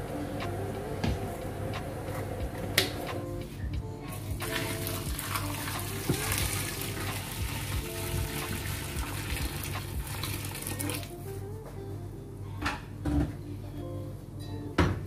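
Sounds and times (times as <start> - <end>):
water pouring into a pot: 4.4 - 11.1.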